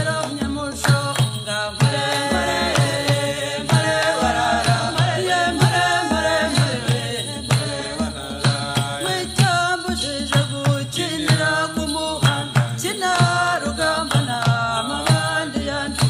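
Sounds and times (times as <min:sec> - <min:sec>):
light rattling percussion: 0:00.0 - 0:16.0
woman singing: 0:00.0 - 0:16.0
low drum beat: 0:01.8 - 0:15.3.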